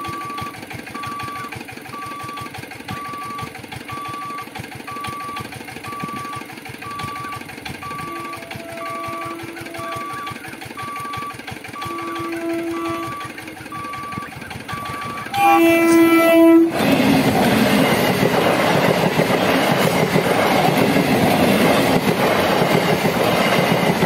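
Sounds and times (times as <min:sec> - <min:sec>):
level crossing beeper: 0:00.0 - 0:16.8
steady fast rattle: 0:00.1 - 0:15.4, 0:16.7 - 0:24.0
train horn: 0:08.0 - 0:10.1, 0:11.8 - 0:13.4, 0:15.3 - 0:16.8.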